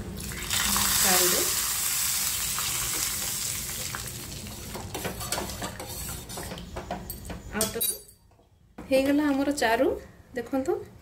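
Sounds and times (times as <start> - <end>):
hot oil sizzling in broth: 0.2 - 6.6.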